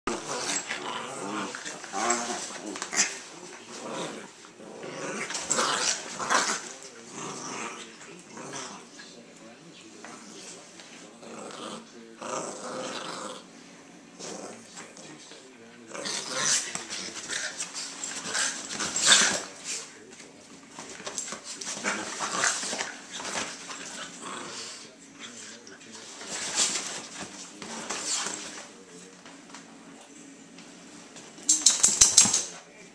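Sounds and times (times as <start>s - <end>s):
dogs play-growling: 0.1s - 9.4s, 10.0s - 30.6s, 31.2s - 32.7s
paws scuffling on leather couch: 25.3s - 29.8s.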